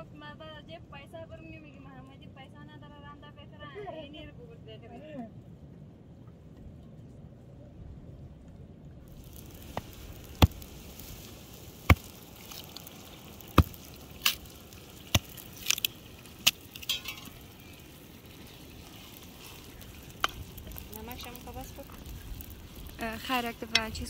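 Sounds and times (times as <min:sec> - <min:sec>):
meat sizzling in a pan: 0:09.1 - 0:24.0.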